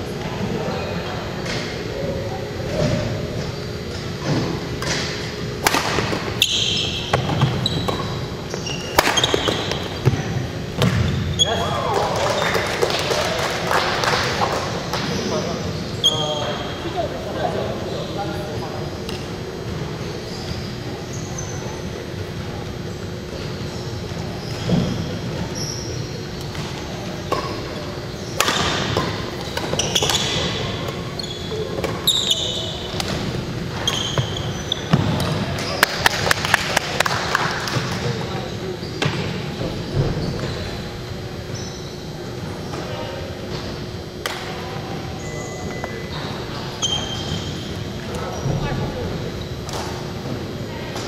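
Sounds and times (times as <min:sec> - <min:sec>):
shoes squeaking on gym floor: 0:06.1 - 0:11.9, 0:15.1 - 0:18.2, 0:20.0 - 0:22.1, 0:23.1 - 0:35.9, 0:38.2 - 0:44.1, 0:45.1 - 0:50.2
racket hitting shuttlecock: 0:08.9 - 0:10.2, 0:28.4 - 0:30.4.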